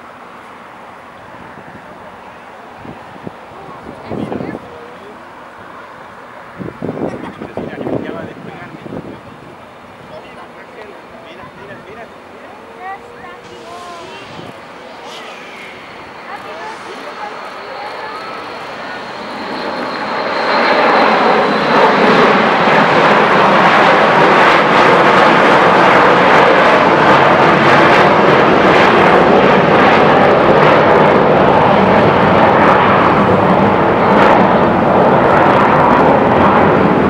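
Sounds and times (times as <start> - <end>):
jet engine roar: 0.0 - 37.0
thin high whine: 12.0 - 22.2.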